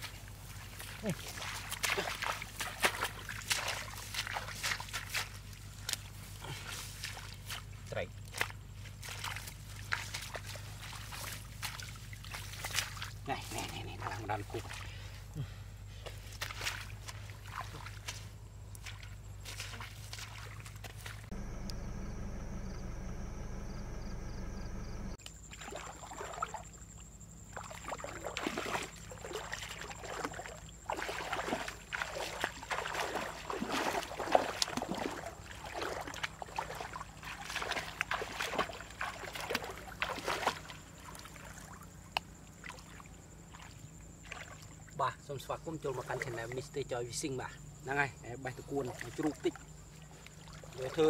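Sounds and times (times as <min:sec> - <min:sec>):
feet wading through water: 0:00.0 - 0:23.6, 0:25.4 - 0:45.0, 0:48.6 - 0:51.0
steady hum: 0:21.3 - 0:25.2.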